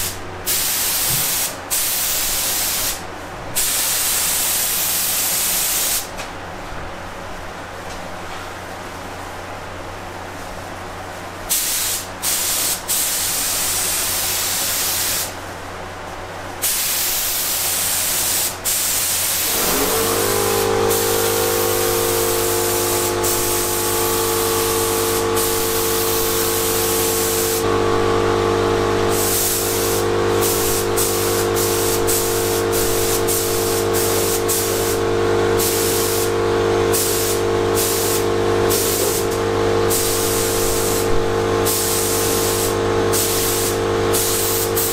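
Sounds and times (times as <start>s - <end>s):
air spray gun hissing: 0.0s - 3.0s, 3.6s - 6.1s, 11.5s - 15.4s, 16.6s - 44.9s
motor whining and humming: 19.4s - 44.8s.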